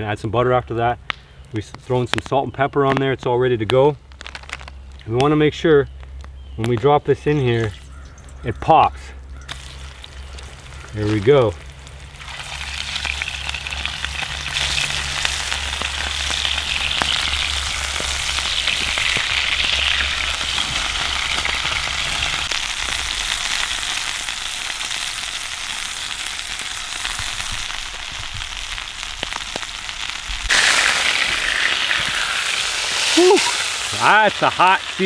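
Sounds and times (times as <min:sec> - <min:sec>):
meat sizzling in hot oil: 0:09.5 - 0:35.0.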